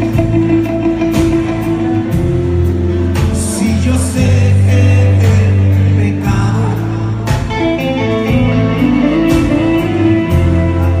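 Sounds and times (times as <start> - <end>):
low bass notes: 0.0 - 11.0
rock band playing live: 0.0 - 11.0.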